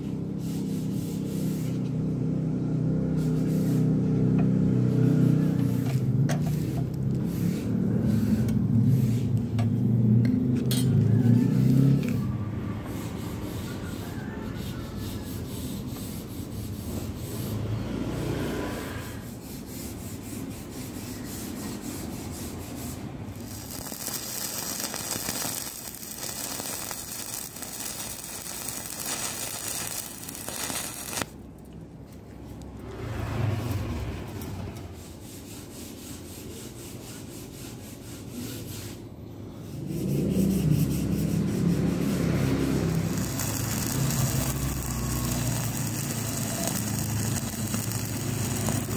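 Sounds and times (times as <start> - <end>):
marker and rule scraping metal: 5.0 - 9.8, 18.9 - 31.3, 39.7 - 48.9
welding arc crackling and hissing: 22.9 - 31.4, 41.2 - 48.9.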